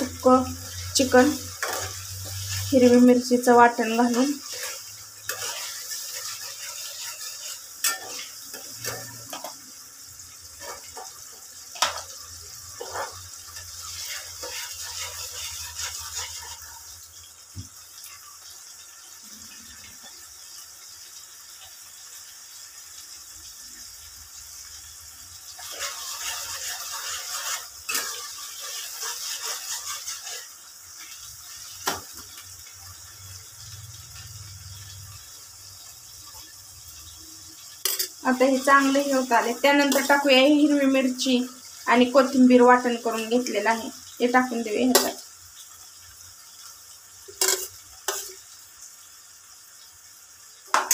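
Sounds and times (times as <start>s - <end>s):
paste sizzling in frying pan: 0.0s - 50.9s
spatula scraping pan: 0.6s - 3.2s, 4.0s - 9.6s, 10.5s - 16.8s, 25.6s - 30.6s, 47.4s - 48.4s.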